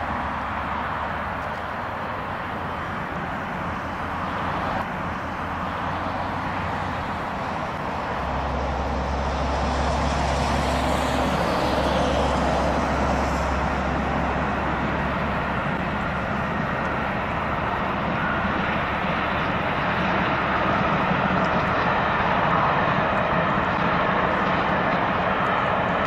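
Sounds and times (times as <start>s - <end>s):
steam train rumbling past: 0.0s - 26.0s.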